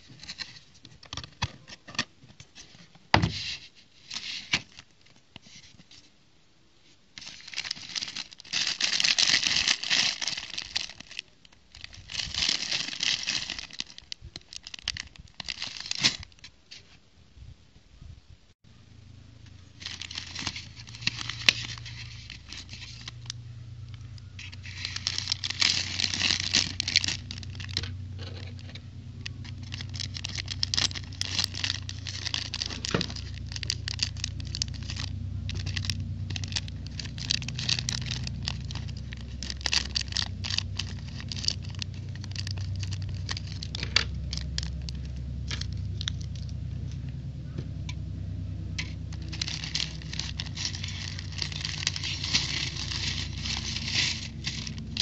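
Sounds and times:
low steady hum: 0.0 - 55.0
plastic bag crinkling: 7.2 - 16.5, 19.3 - 46.6, 48.7 - 55.0.

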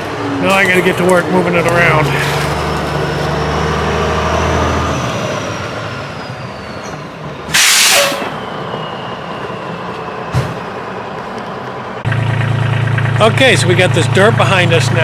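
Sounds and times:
truck engine hum: 0.0 - 15.0
air brakes hissing: 6.1 - 10.7.

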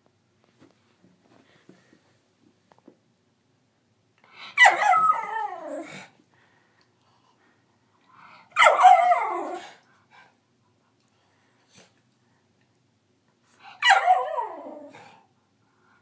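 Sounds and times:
dog howling bark: 4.6 - 5.9, 8.6 - 9.8, 13.8 - 15.0.

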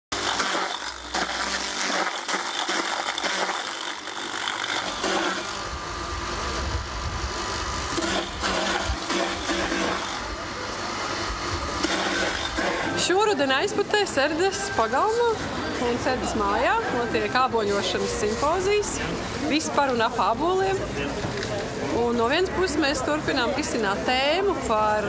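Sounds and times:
apple mill grinding: 0.1 - 15.6.

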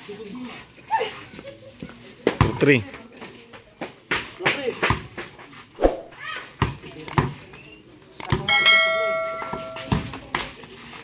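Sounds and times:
bright bell chime: 8.5 - 10.0.

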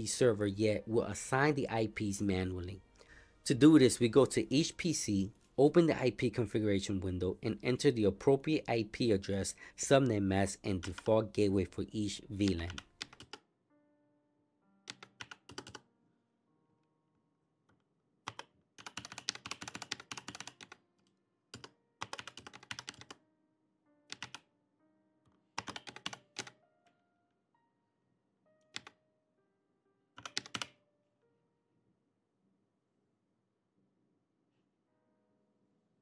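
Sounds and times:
faint background music: 0.0 - 17.2, 18.3 - 29.6
computer keyboard typing: 10.8 - 11.3, 12.4 - 13.4, 14.8 - 15.8, 18.2 - 20.8, 21.5 - 23.2, 24.1 - 24.5, 25.5 - 26.6, 28.7 - 29.0, 30.2 - 30.8.

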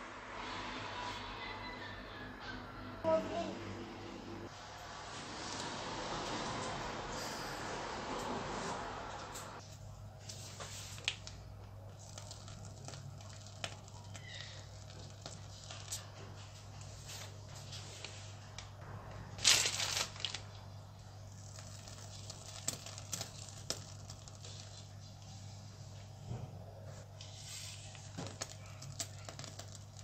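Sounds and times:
piping bags crinkling: 10.3 - 25.3, 27.7 - 30.0.

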